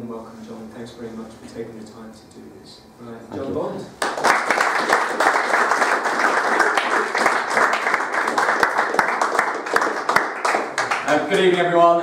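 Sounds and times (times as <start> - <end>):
audience applauding: 4.0 - 11.8.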